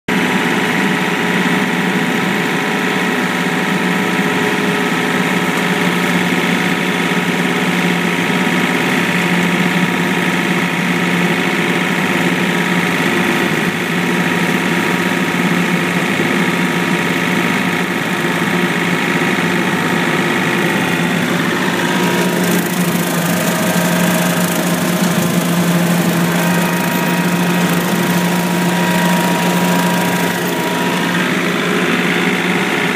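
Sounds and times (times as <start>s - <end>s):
tractor diesel engine under load: 0.1s - 32.9s
rotary cutter cutting grass: 11.8s - 32.9s.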